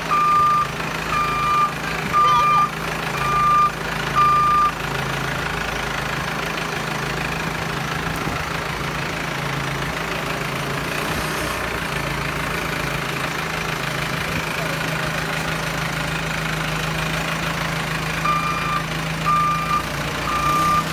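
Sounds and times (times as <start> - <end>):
diesel engine running: 0.0 - 20.9
reversing alarm beeps: 0.1 - 4.8, 18.2 - 20.9.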